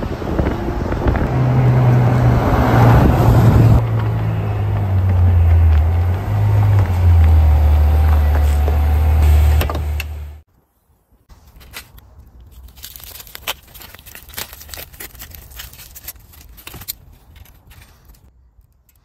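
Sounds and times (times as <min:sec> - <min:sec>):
loud car engine: 0:00.0 - 0:10.4
aluminium foil crinkling: 0:11.4 - 0:19.0.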